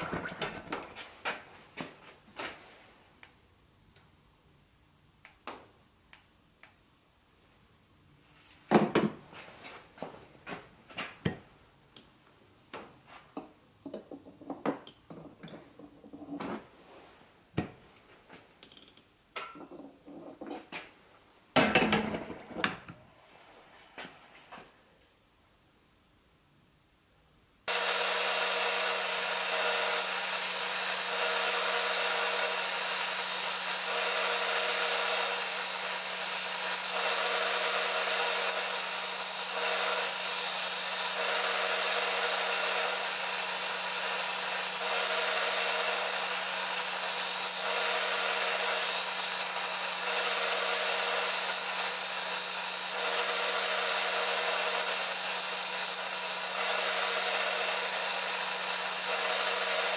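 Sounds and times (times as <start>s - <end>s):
blade grinding hiss: 27.7s - 59.9s
grinder motor hum: 27.7s - 59.9s.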